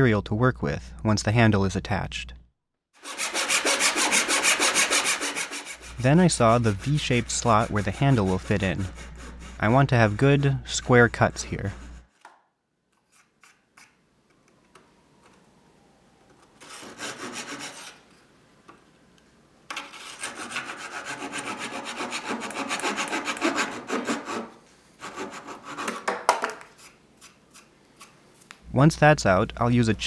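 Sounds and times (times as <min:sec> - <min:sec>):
hand saw cutting wood: 0:03.0 - 0:12.3, 0:16.6 - 0:18.0, 0:19.8 - 0:28.2.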